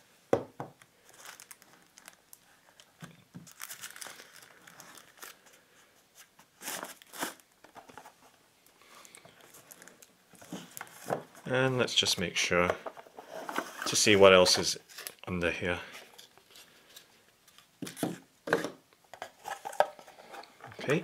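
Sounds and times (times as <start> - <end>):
plastic wrapping crinkling: 1.0 - 5.6, 9.0 - 11.5, 13.3 - 15.3.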